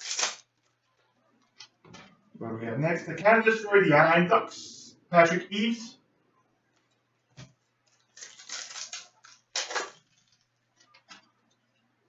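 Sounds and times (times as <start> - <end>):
crinkling and rustling of wrappers: 0.0 - 1.8, 6.7 - 11.8.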